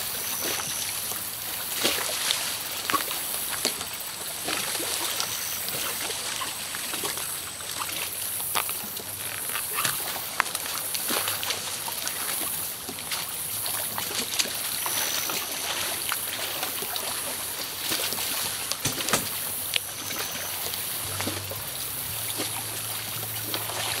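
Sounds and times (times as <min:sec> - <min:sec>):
feet splashing through water: 0:00.0 - 0:24.0
sharp knocks on boat: 0:18.8 - 0:19.4.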